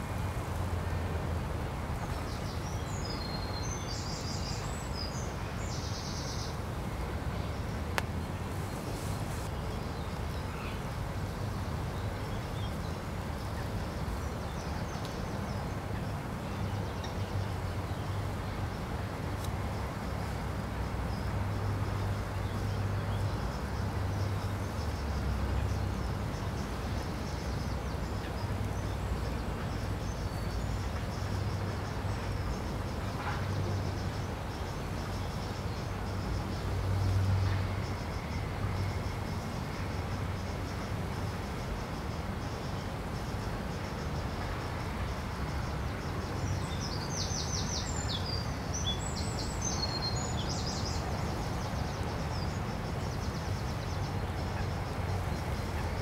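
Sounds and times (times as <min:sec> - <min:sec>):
faint click: 0:07.9 - 0:08.2.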